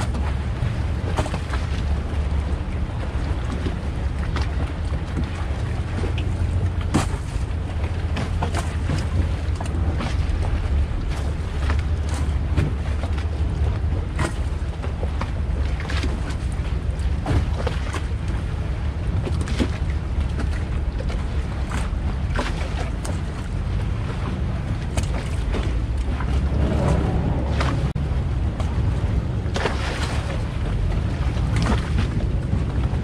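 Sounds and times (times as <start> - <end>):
boat engine rumbling: 0.0 - 33.0
wind on microphone: 0.0 - 33.0.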